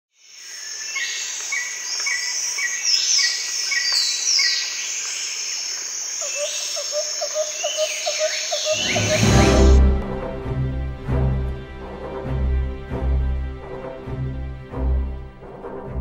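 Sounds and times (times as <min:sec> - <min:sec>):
high insect hiss: 0:00.2 - 0:09.8
falling whistled bird calls: 0:06.2 - 0:09.8
lower repeating bird call: 0:06.2 - 0:09.8.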